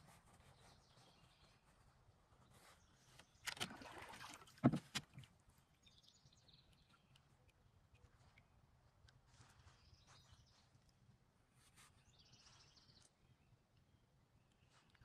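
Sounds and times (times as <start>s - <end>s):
faint bird chirps: 0.4s - 3.6s, 9.3s - 10.9s, 11.7s - 15.0s
paddle swishing through water: 3.5s - 5.4s.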